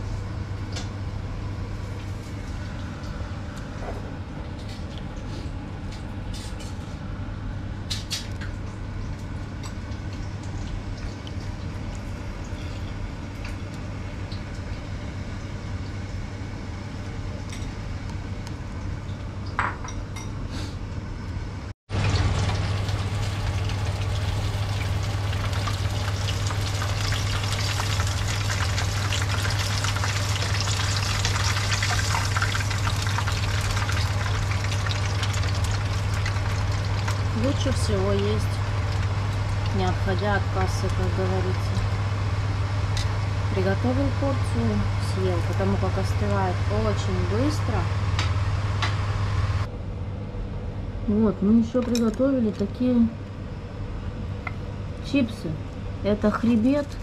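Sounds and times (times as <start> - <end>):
steady low hum: 0.0 - 57.0
battered fish frying in oil: 21.9 - 44.3.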